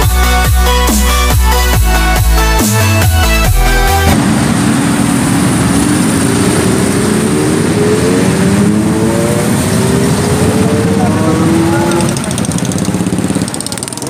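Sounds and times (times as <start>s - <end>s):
electronic dance music: 0.0s - 4.3s, 10.3s - 14.0s
motorbike engine accelerating: 0.8s - 14.0s.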